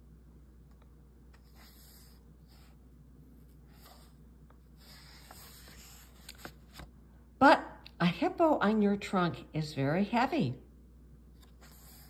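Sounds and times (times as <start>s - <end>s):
paper pages rustling: 3.4s - 7.0s.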